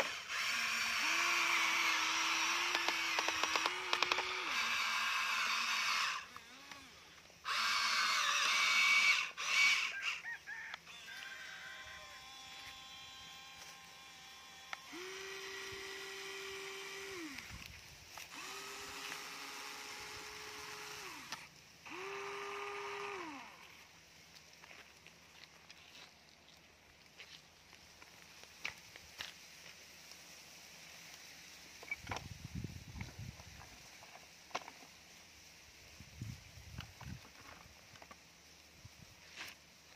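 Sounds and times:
toy excavator motors whining: 0:00.0 - 0:24.0, 0:31.7 - 0:34.9, 0:36.2 - 0:38.4, 0:39.0 - 0:39.9.

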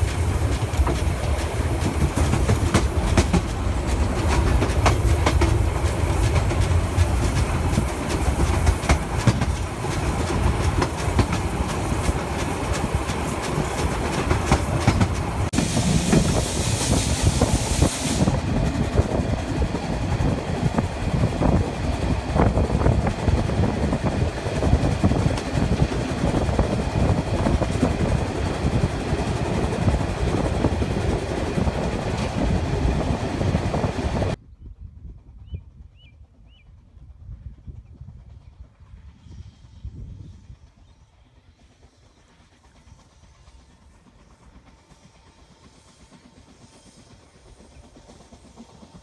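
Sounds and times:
steam hiss: 0:00.0 - 0:19.2, 0:39.1 - 0:49.0
train wheels clattering over rails: 0:00.0 - 0:34.4.

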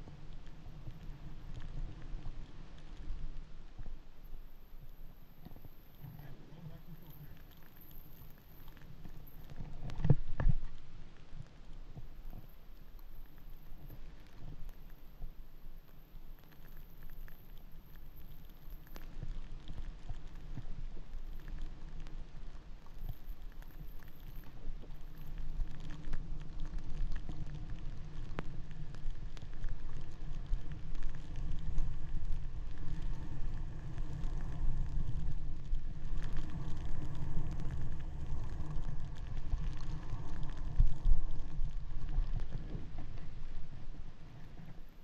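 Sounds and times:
wind rumbling over microphone: 0:00.0 - 0:45.0
skis sliding on snow: 0:16.5 - 0:45.0.

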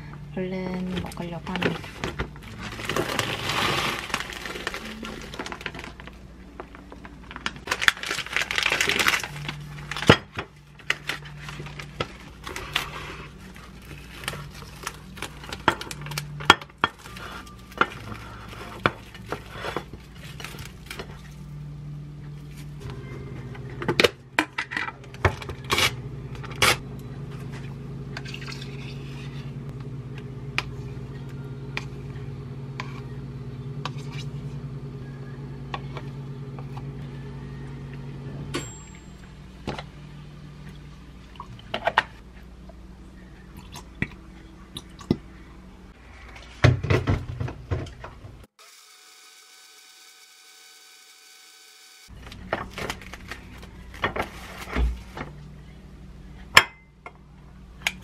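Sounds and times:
steady low hum: 0:00.0 - 0:48.6
plastic wrap crinkling: 0:01.5 - 0:21.4, 0:52.1 - 0:55.2.

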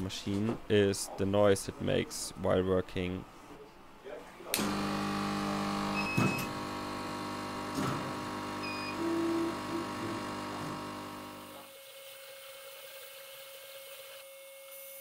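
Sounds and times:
compressor and blower humming: 0:04.5 - 0:11.7.

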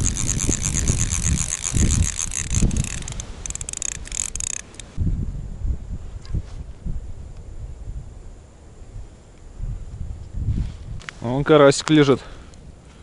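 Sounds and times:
ice auger scraping through ice: 0:00.0 - 0:04.8.

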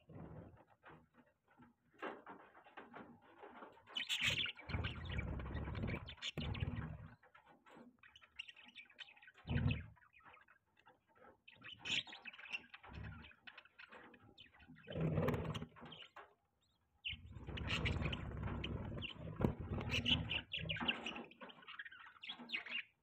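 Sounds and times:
bird chicks begging chirps: 0:17.1 - 0:23.0.

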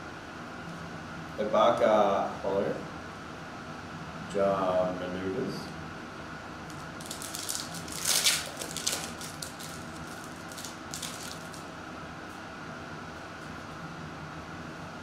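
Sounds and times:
foil wrapper crinkling and tearing: 0:06.7 - 0:11.7.

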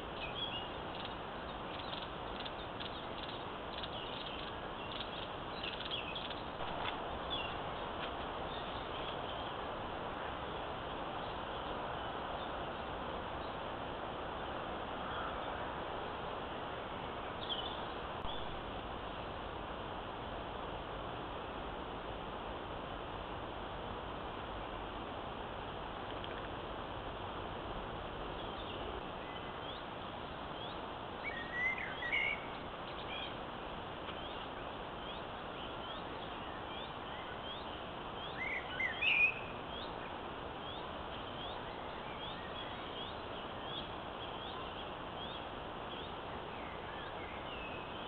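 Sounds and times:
microphone hiss: 0:00.0 - 0:48.0
bird chirping: 0:00.1 - 0:09.6, 0:17.3 - 0:18.6, 0:30.5 - 0:33.4, 0:34.1 - 0:48.0.

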